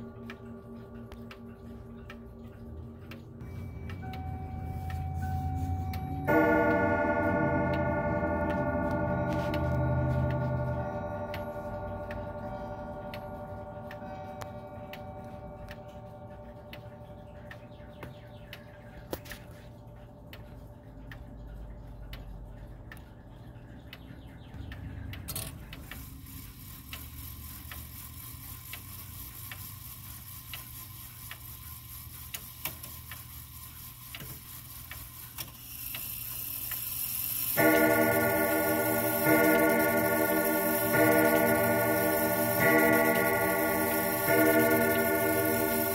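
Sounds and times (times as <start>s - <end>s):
chime rods ringing: 0.0s - 18.2s, 37.0s - 45.9s
grandfather clock ticking: 0.0s - 45.9s.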